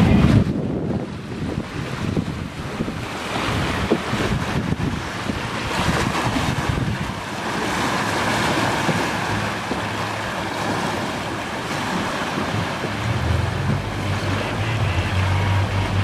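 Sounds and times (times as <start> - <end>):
boat engine humming: 0.0 - 16.0
churning water: 0.0 - 16.0
wind buffeting microphone: 0.0 - 16.0.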